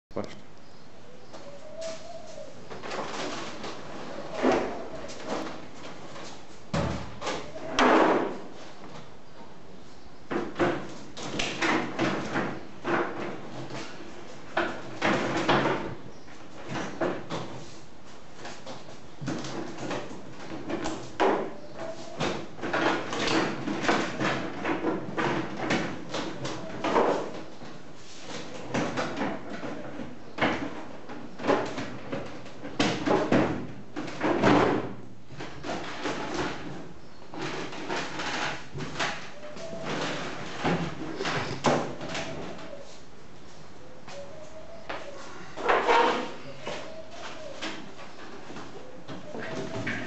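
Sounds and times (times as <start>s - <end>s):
plastic panel scraping and knocking: 19.2s - 42.7s.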